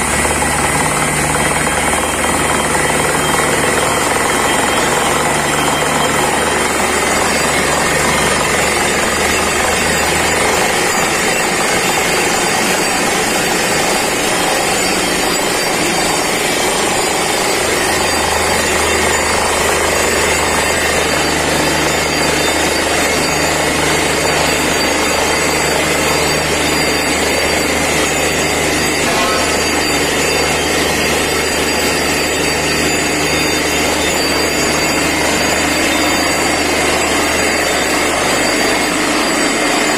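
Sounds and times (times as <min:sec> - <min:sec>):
drill hammer pounding clatter: 0:00.0 - 0:39.9
engine and compressor drone: 0:00.0 - 0:39.9.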